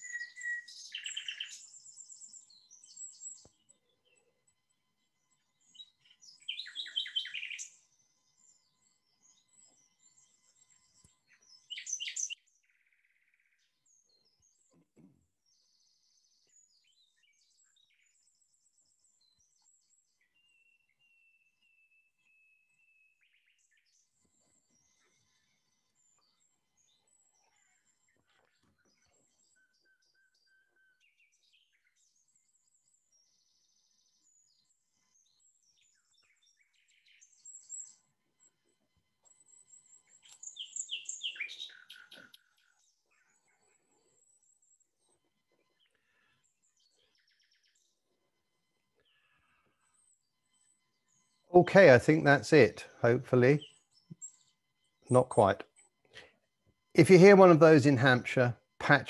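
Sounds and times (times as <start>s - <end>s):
nightingale singing: 0.0s - 4.2s, 5.4s - 7.8s, 8.4s - 13.8s, 35.2s - 38.0s, 39.3s - 43.6s, 50.0s - 55.8s
nightingale song: 0.0s - 14.8s, 15.4s - 38.6s, 39.2s - 48.1s, 49.0s - 55.9s, 57.0s - 59.0s.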